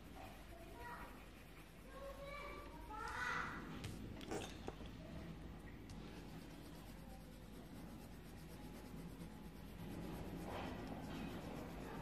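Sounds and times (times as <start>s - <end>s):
coloured pencil scratching on paper: 0.0s - 3.2s, 6.0s - 12.0s.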